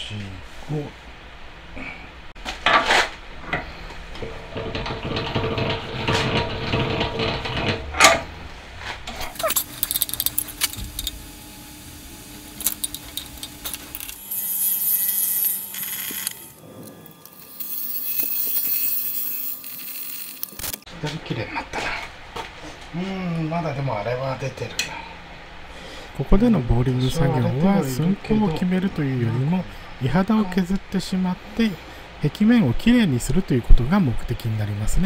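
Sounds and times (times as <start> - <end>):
machine hum: 3.2 - 20.9
metal tools clinking: 9.2 - 11.2, 12.6 - 20.8.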